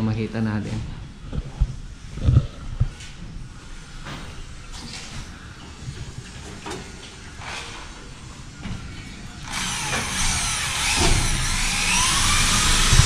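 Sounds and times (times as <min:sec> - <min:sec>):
power tool motor running: 0:09.4 - 0:13.0.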